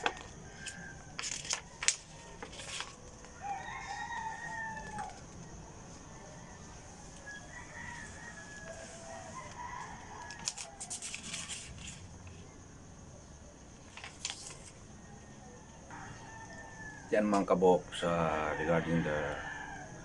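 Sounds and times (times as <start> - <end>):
paper pages rustling: 0.0 - 3.3, 8.7 - 12.3, 13.8 - 14.8
rooster crowing: 0.0 - 11.7, 14.9 - 20.0.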